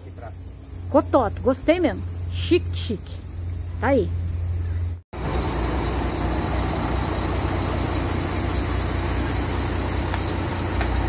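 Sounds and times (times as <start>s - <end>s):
burger patties frying: 0.0s - 11.0s
truck engine idling: 0.0s - 11.0s.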